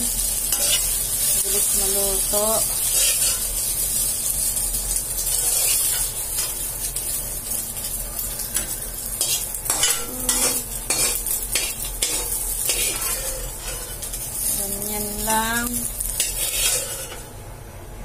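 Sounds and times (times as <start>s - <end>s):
egg sizzling in oil: 0.0s - 17.4s
metal spatula scraping pan: 0.5s - 1.0s, 2.8s - 3.5s, 5.3s - 6.5s, 9.2s - 14.1s, 16.2s - 17.3s.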